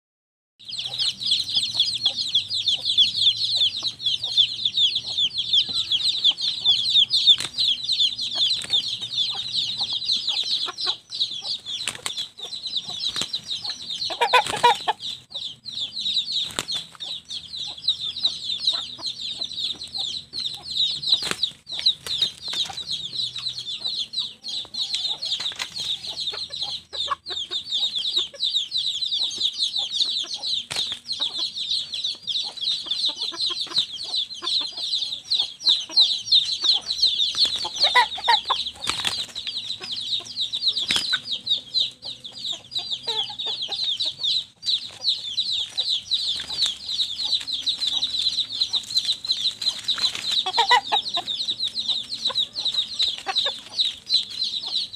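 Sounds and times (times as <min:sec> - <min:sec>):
dense high chirping: 0:00.6 - 0:54.9
roosters flapping and knocking: 0:47.4 - 0:50.7.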